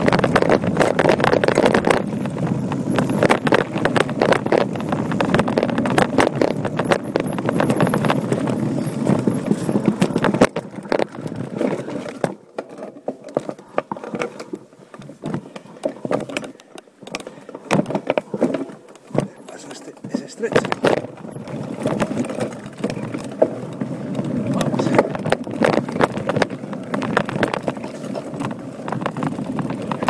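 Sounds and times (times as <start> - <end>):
tyres rolling rumble: 0.0 - 12.2, 19.1 - 30.0
bike rattling over rocks: 0.0 - 30.0.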